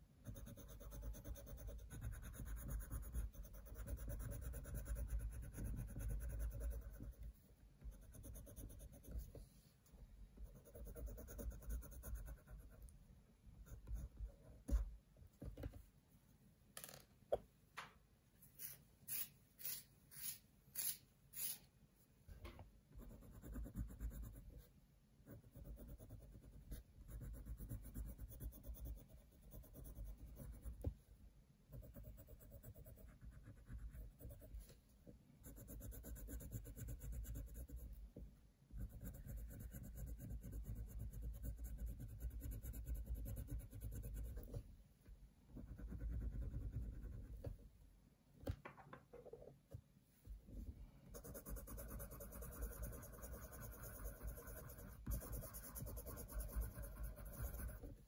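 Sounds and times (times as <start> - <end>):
pencil scratching on paper: 0.2 - 9.6, 10.4 - 12.9, 23.0 - 24.7, 25.3 - 30.9, 31.7 - 34.8, 35.4 - 38.0, 38.8 - 44.6, 45.6 - 47.4, 51.1 - 58.0.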